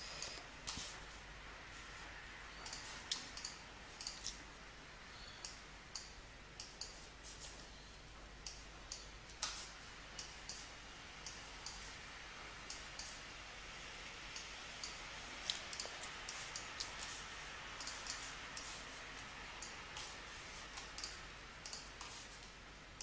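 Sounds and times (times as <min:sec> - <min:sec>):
faint steady hiss: 0:00.0 - 0:23.0
computer mouse clicking: 0:02.6 - 0:04.4, 0:17.8 - 0:18.8, 0:20.8 - 0:22.6.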